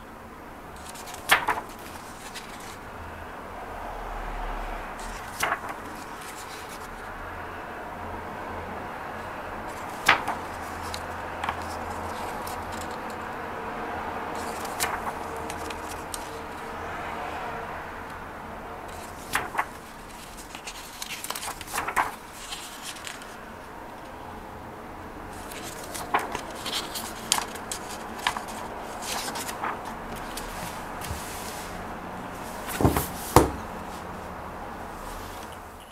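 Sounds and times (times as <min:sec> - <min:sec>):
book pages turning: 0:00.8 - 0:02.8, 0:05.0 - 0:07.1, 0:09.7 - 0:13.2, 0:14.3 - 0:16.9, 0:18.9 - 0:24.1, 0:25.3 - 0:34.1
book thumping on wooden table: 0:32.7 - 0:33.7.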